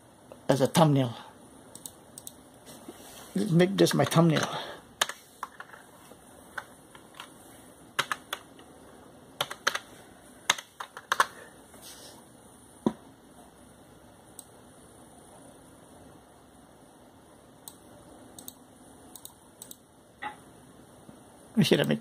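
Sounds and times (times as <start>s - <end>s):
computer keyboard typing: 8.0s - 8.6s, 9.4s - 9.9s, 10.5s - 11.4s.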